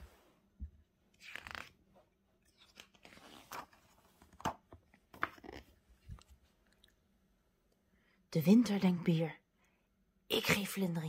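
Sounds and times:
book pages rustling: 0:01.1 - 0:06.6.

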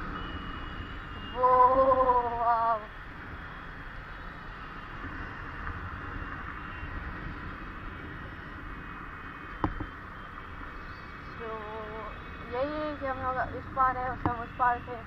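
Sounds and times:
small motorbike engine running: 0:09.5 - 0:15.0.

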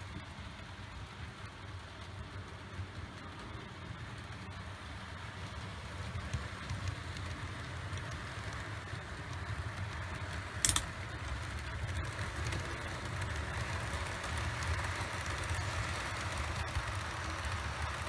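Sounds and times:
model train running on track: 0:00.0 - 0:18.0
sharp click: 0:10.6 - 0:10.9.

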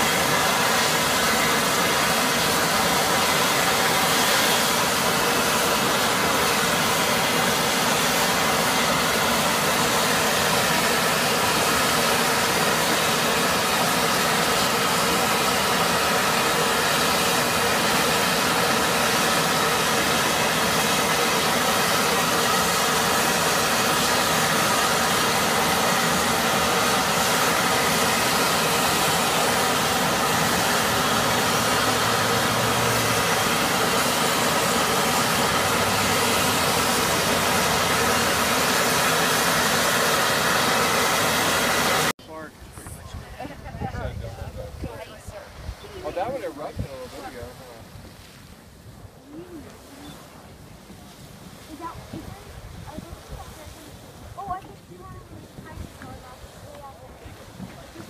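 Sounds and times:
steam vent hissing: 0:00.0 - 0:42.1.

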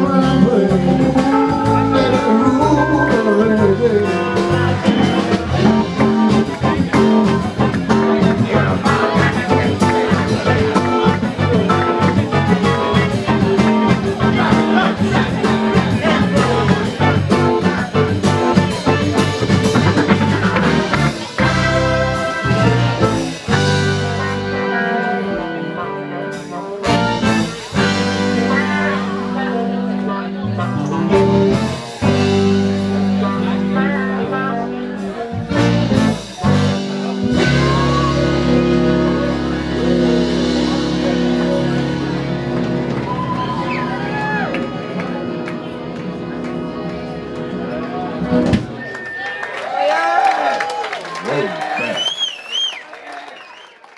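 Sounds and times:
band playing: 0:00.0 - 0:52.6
drum hits: 0:08.6 - 0:23.8.

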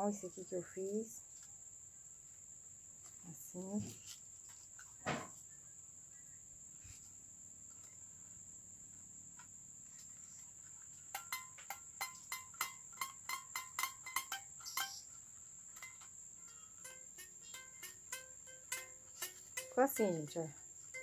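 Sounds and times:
toy guitar strummed: 0:11.1 - 0:15.1, 0:15.8 - 0:21.0
steady high-pitched tone: 0:11.2 - 0:15.1, 0:15.8 - 0:21.0.

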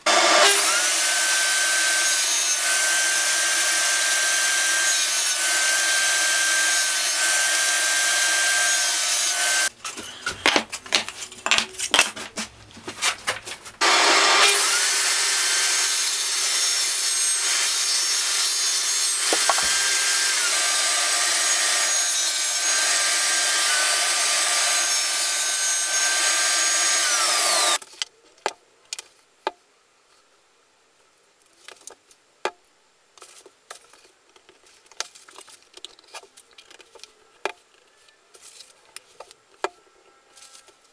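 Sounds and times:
table saw cutting wood: 0:00.0 - 0:10.2, 0:13.8 - 0:27.8.

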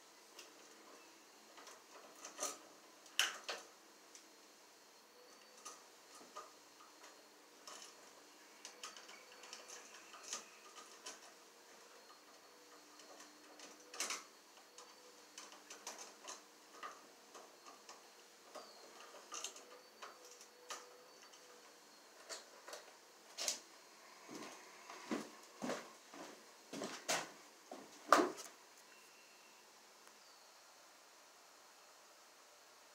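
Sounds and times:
small clicks of wiring work: 0:01.6 - 0:04.3, 0:05.3 - 0:23.6.

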